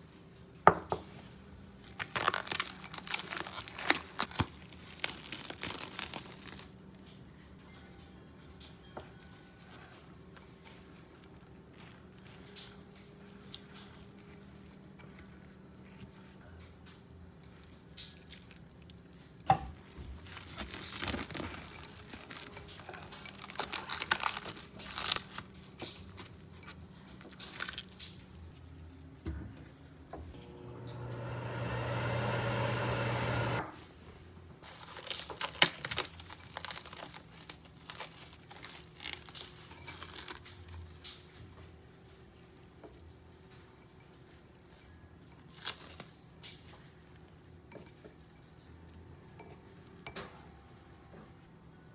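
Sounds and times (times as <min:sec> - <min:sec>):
plastic wrap crinkling and tearing: 0:01.8 - 0:07.1, 0:19.8 - 0:28.4, 0:34.6 - 0:41.3, 0:45.4 - 0:46.6
microwave oven humming: 0:30.3 - 0:33.8.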